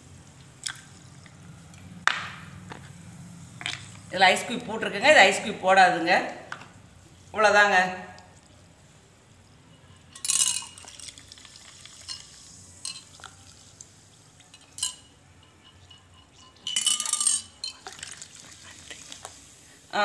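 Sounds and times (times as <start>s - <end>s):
glassy clinks: 10.1s - 11.1s, 12.1s - 13.2s, 14.5s - 18.1s
soda pouring and fizzing: 10.2s - 15.0s, 16.6s - 20.0s.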